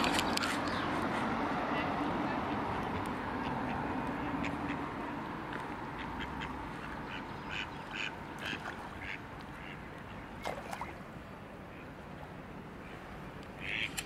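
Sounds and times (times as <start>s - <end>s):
ducks quacking: 6.0s - 9.8s.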